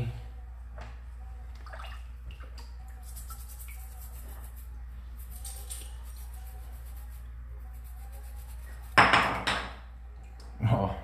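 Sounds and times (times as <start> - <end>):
brush scrubbing stone: 3.0 - 9.0.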